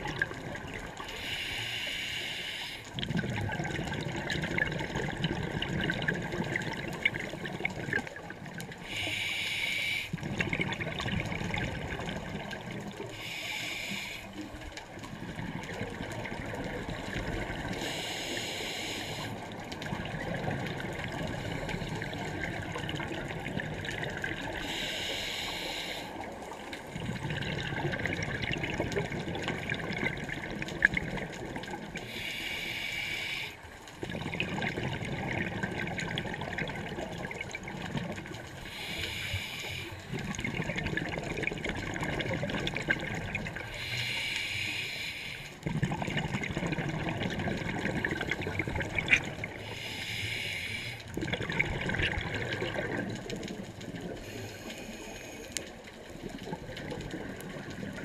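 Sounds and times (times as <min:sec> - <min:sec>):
underwater bubbling: 0:00.0 - 0:58.0
diver breathing through regulator: 0:01.1 - 0:03.0, 0:08.8 - 0:10.3, 0:13.1 - 0:14.5, 0:17.7 - 0:19.5, 0:24.5 - 0:26.4, 0:32.0 - 0:33.6, 0:38.6 - 0:40.4, 0:43.6 - 0:45.7, 0:49.5 - 0:51.2, 0:54.1 - 0:55.8.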